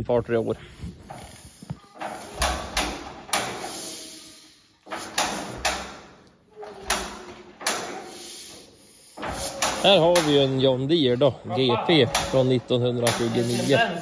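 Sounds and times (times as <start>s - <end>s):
metal clunks and scrapes: 0.7s - 4.1s, 4.8s - 10.6s.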